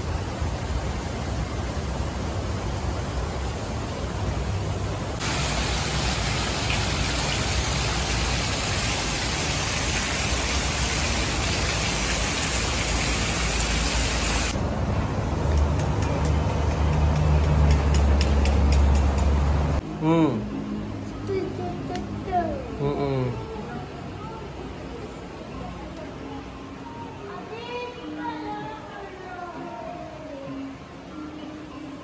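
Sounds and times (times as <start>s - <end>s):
background hiss: 0.0s - 14.6s.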